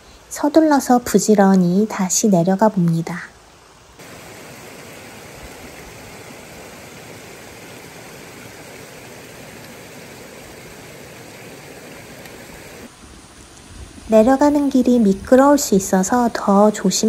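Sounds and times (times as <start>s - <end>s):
mountain stream flowing: 1.3s - 13.9s.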